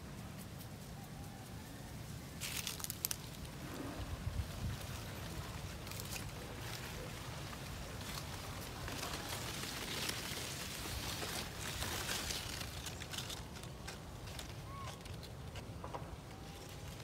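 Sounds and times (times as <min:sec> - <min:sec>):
leaves rustling: 0:00.0 - 0:17.0
wind rumble on microphone: 0:03.2 - 0:11.4.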